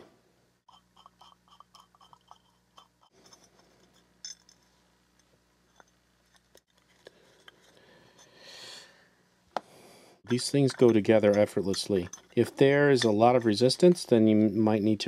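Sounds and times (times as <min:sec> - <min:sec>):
small metal parts clicking: 0:00.7 - 0:08.4, 0:10.3 - 0:14.2.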